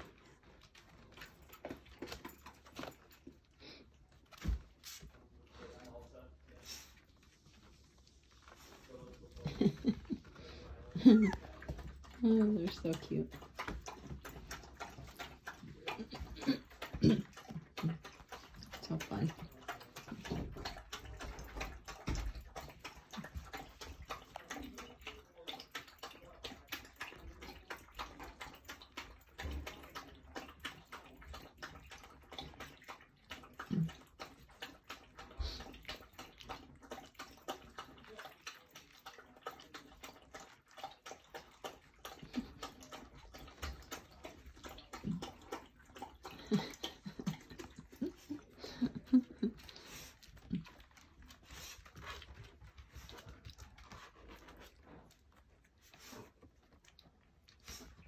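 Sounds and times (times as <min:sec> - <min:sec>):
puppy grunts: 0:09.3 - 0:12.2, 0:13.4 - 0:19.1, 0:42.1 - 0:51.0.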